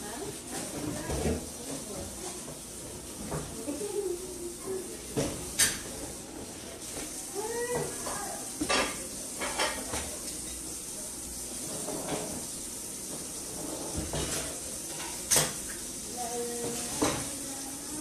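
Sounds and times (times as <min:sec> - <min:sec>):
faint voices: 0:03.2 - 0:12.0
dishes and cutlery clattering: 0:05.1 - 0:06.2, 0:07.7 - 0:10.7, 0:11.6 - 0:12.5, 0:13.1 - 0:15.8, 0:16.6 - 0:17.4.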